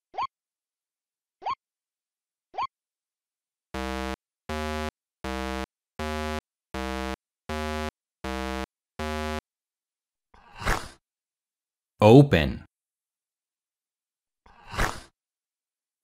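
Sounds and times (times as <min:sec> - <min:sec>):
short buzzy synth tones: 0:03.8 - 0:09.4.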